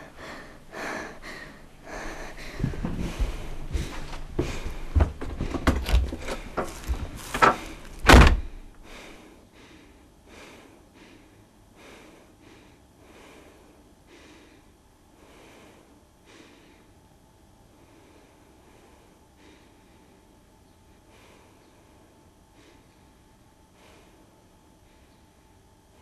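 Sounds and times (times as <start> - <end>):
faint breaths: 0.0 - 26.0
knocks and thumps: 2.6 - 8.5.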